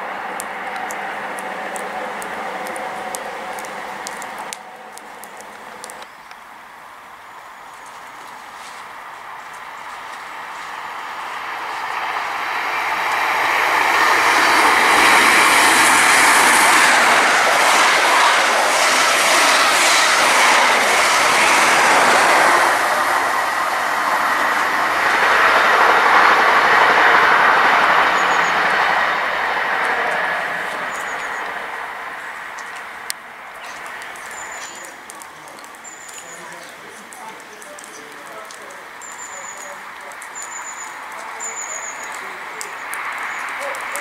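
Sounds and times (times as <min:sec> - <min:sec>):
train passing at speed: 0:00.0 - 0:06.0, 0:09.3 - 0:35.0.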